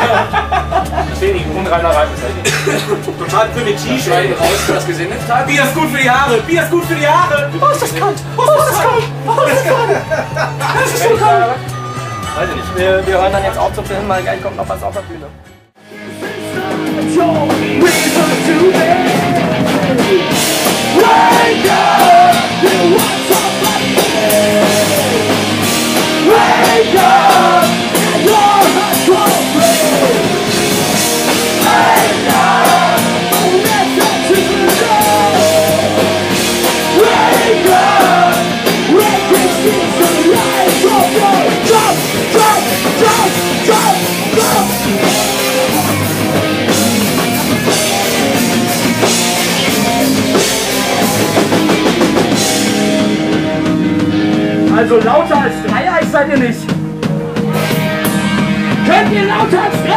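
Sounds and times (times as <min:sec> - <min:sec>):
drum kit with cymbal hits: 0:00.0 - 0:15.1, 0:15.8 - 0:59.9
electric guitar: 0:15.8 - 0:55.8, 0:56.4 - 0:59.9.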